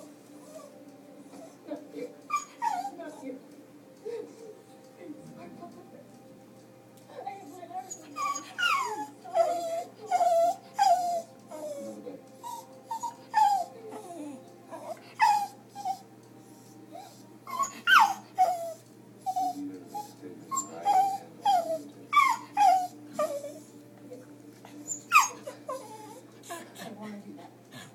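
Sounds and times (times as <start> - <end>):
dog whining and yelping: 2.3 - 3.3, 7.9 - 23.7, 24.8 - 26.3.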